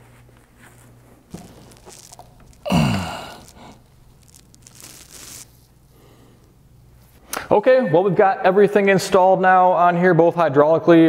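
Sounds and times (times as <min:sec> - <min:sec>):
rag rustling while wiping: 0:00.0 - 0:02.2
man sighing: 0:02.6 - 0:03.8.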